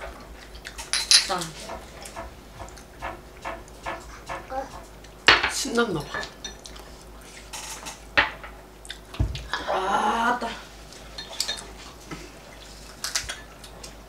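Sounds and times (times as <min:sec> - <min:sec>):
dishes and cutlery clinking: 0:00.0 - 0:06.8, 0:11.1 - 0:11.9.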